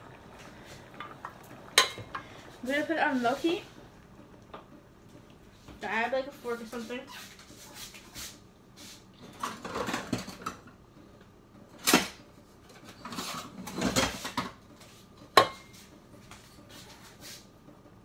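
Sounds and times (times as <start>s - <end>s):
cutlery and dishes clattering: 9.4s - 10.6s.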